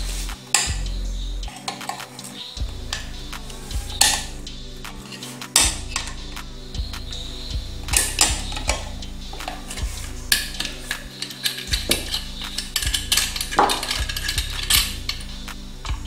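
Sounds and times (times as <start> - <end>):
background music: 0.0 - 16.0
pliers clinking on metal: 7.9 - 16.0.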